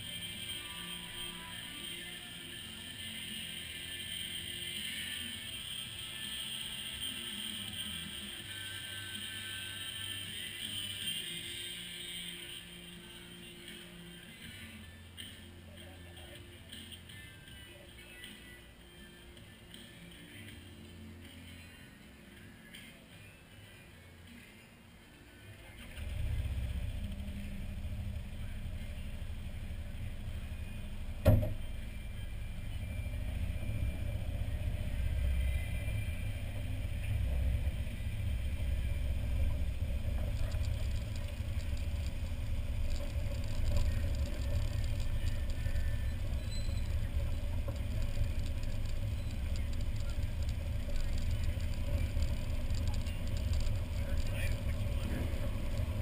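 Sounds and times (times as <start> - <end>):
motorbike engine rumbling: 25.8 - 56.0
sharp click: 31.2 - 31.6.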